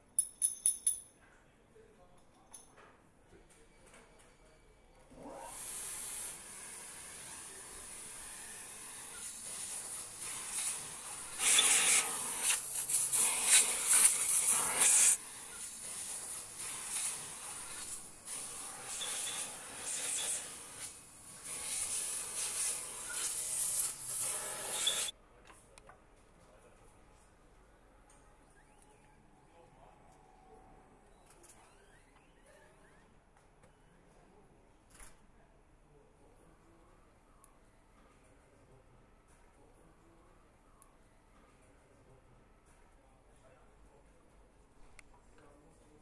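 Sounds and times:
pneumatic tools hissing: 5.4s - 25.1s.

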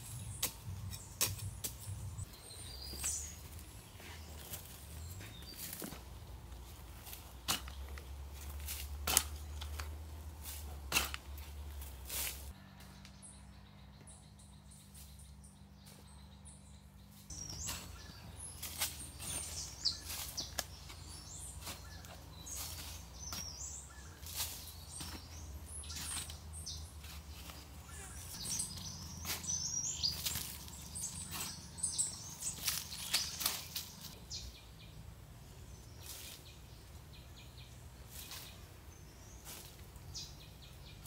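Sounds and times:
shovel digging into dry soil: 0.0s - 2.0s, 6.9s - 12.5s, 17.3s - 27.7s, 28.3s - 34.2s
birds chirping: 0.0s - 41.0s.

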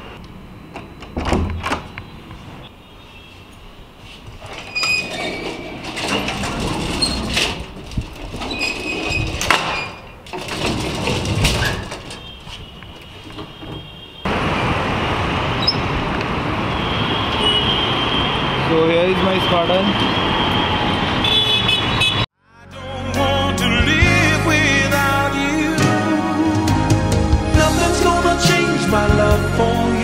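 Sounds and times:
street traffic noise: 0.0s - 22.4s
metal scissor gate rattling: 4.5s - 12.3s.

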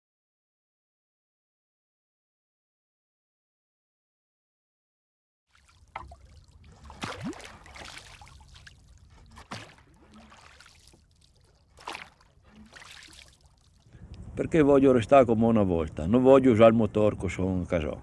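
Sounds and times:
oars splashing in water: 5.5s - 13.9s
faint water trickle: 5.5s - 14.2s.

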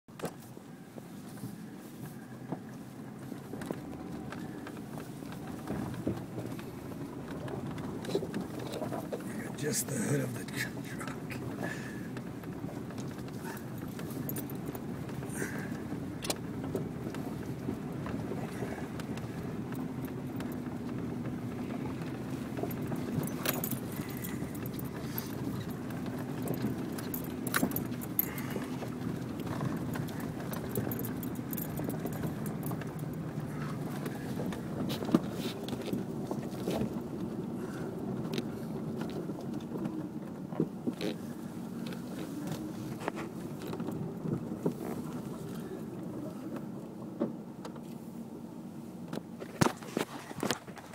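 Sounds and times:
truck engine under load: 2.2s - 47.8s
sharp clicks and rattles: 3.6s - 37.4s.

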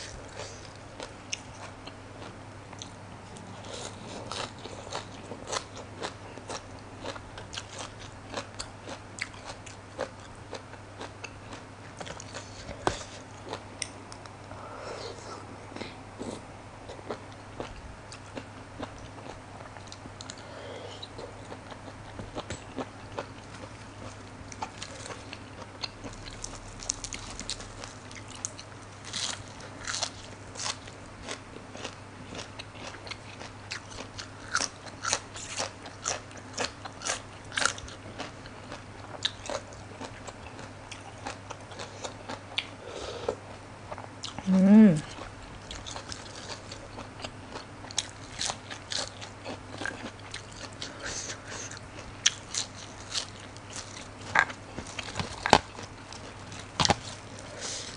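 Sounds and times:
chewing: 15.7s - 44.4s, 45.0s - 57.9s.

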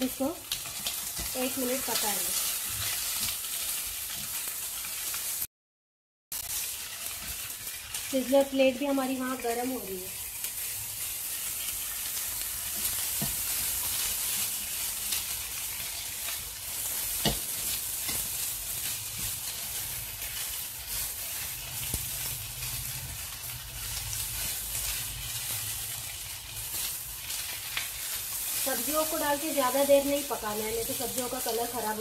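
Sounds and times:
food sizzling in a wok: 0.0s - 5.5s, 6.3s - 32.0s
spatula scraping and tapping pan: 11.6s - 14.5s, 15.1s - 22.4s.

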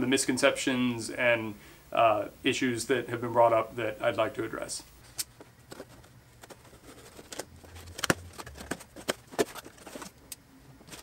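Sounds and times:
cardboard box being handled: 5.7s - 10.2s.

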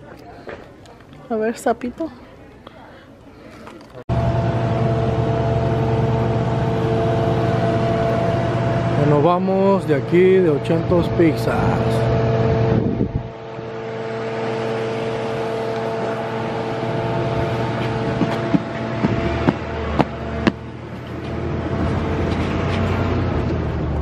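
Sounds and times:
car engine idling: 4.1s - 24.0s.

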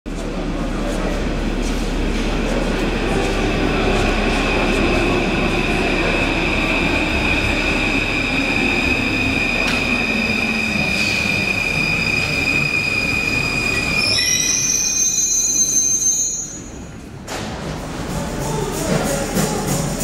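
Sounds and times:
rumble of train cars: 0.1s - 20.0s
train wheel squeal: 7.2s - 16.9s.

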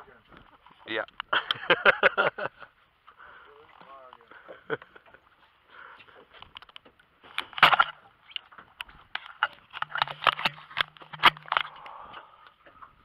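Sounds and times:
fishing reel clicks and knocks: 9.2s - 11.9s.

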